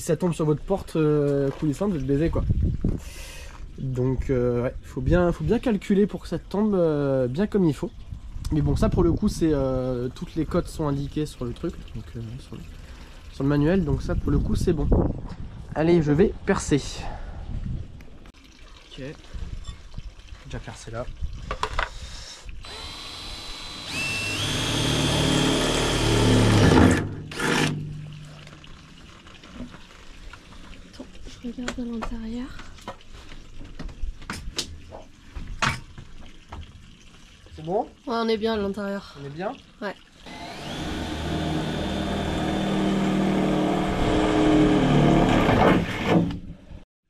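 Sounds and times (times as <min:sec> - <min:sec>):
electric drill boring into metal: 0:22.6 - 0:27.8, 0:40.3 - 0:46.2.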